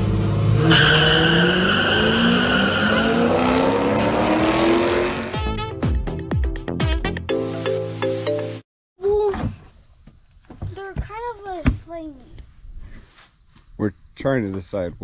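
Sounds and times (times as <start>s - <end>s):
drag car engines revving: 0.0s - 5.3s.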